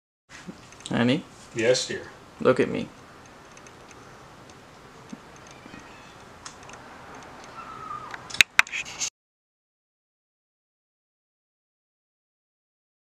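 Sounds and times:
sharp clicks: 3.2s - 8.7s
brief rustle: 5.1s - 9.1s.

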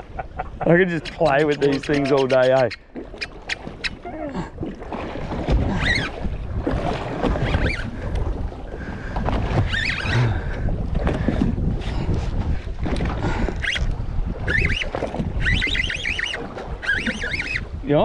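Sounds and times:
water lapping against boat hull: 0.0s - 18.0s
wind buffeting microphone: 3.6s - 18.0s.

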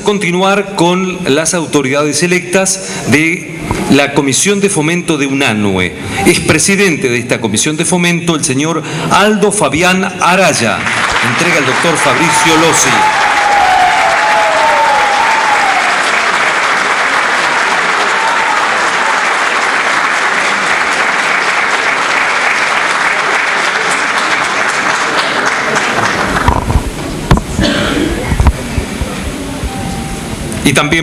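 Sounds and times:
audience applauding: 10.4s - 27.4s.

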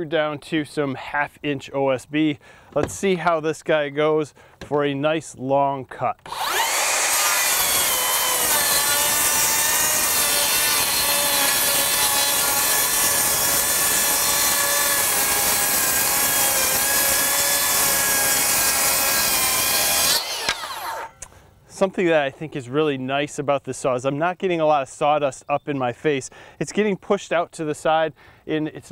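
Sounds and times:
circular saw cutting wood: 6.2s - 21.3s.

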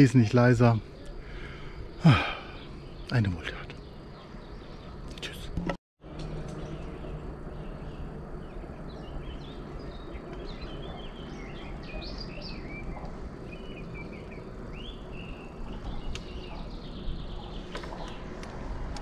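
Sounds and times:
songbirds singing: 0.0s - 19.0s
wind rumble: 0.0s - 19.0s
bicycle rolling: 6.3s - 19.0s.

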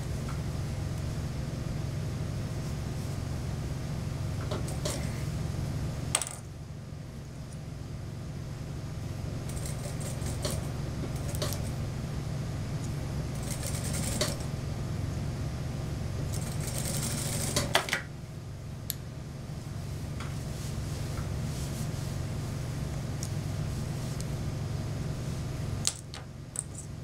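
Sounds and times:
sewing machine motor humming: 9.4s - 11.8s, 13.3s - 14.5s, 16.2s - 17.8s.

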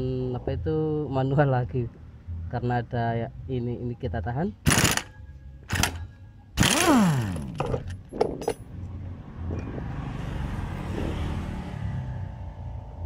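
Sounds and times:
impact wrench burst: 4.6s - 8.0s
metal clinks: 7.2s - 8.7s.

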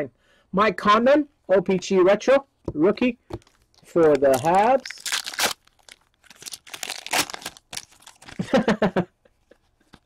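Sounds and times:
cards being handled: 2.7s - 5.5s, 6.6s - 8.5s
wrapper crinkling and tearing: 3.4s - 8.5s.

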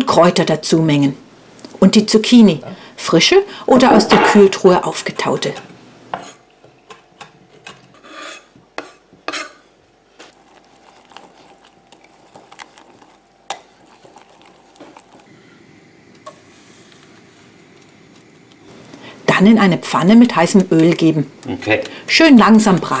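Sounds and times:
batter stirred in glass jug: 10.2s - 15.3s.

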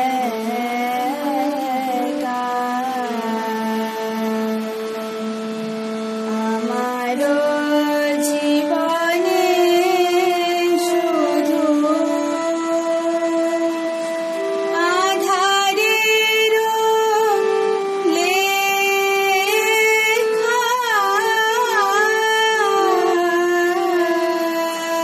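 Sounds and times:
held instrumental accompaniment: 0.0s - 25.0s
girl singing: 6.3s - 13.8s.

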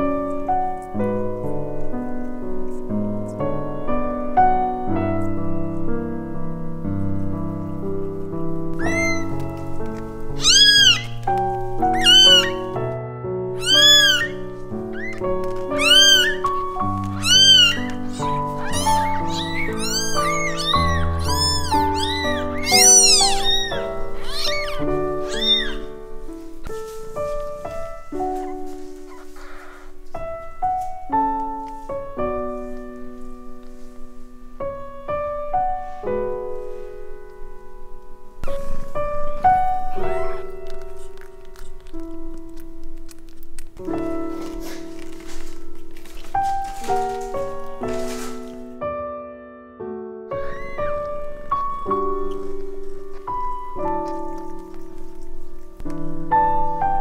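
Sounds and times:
soft piano music: 0.0s - 57.0s
kittens mewing: 8.7s - 9.7s, 10.3s - 12.8s, 13.5s - 26.1s, 27.8s - 30.1s, 39.7s - 41.4s, 50.3s - 51.5s.

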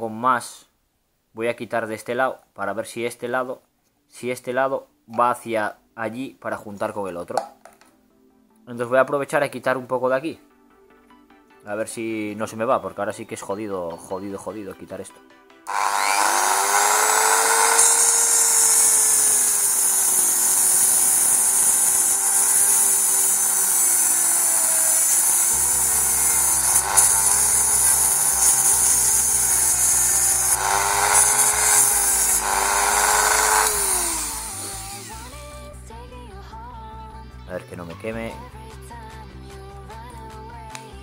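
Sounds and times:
rotary tool grinding plastic: 15.7s - 35.5s.

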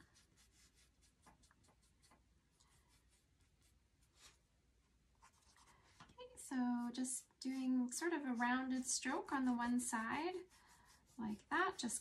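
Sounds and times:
paintbrush swishes: 6.8s - 12.0s.

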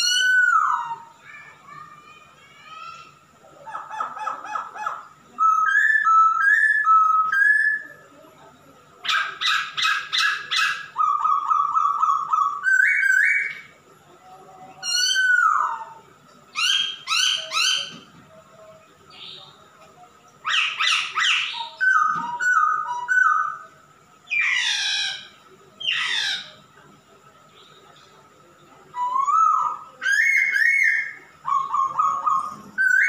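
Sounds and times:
bird singing varied song: 0.0s - 33.0s.

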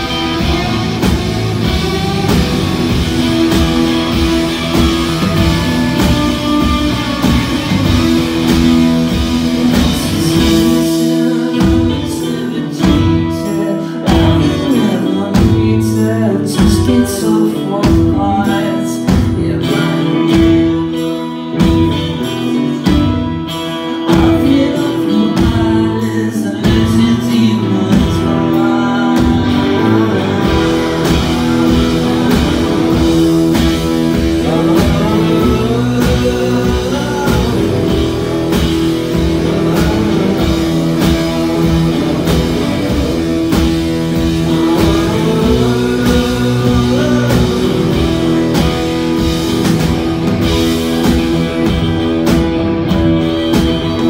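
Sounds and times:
strong regular beat: 0.0s - 11.2s, 29.4s - 54.0s
strummed acoustic guitar: 0.0s - 54.0s
man singing: 1.6s - 49.8s, 52.9s - 54.0s.

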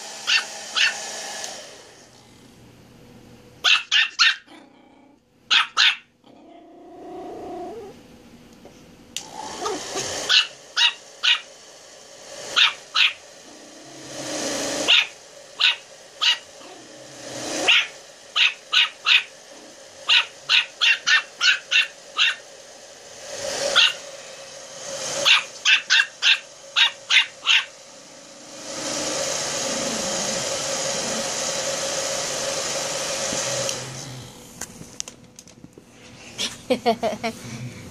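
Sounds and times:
puppy yapping: 0.2s - 1.0s, 3.6s - 4.5s, 5.5s - 6.1s, 9.6s - 11.5s, 12.6s - 13.2s, 14.9s - 16.8s, 17.6s - 19.3s, 20.1s - 22.4s, 23.7s - 24.0s, 25.2s - 27.7s.

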